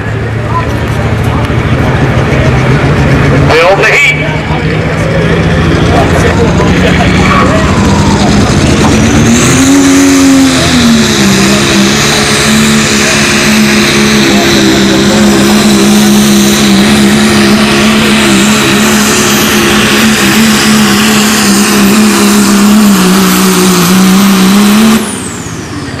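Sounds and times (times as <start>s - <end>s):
diesel truck engine at full power: 0.0s - 26.0s.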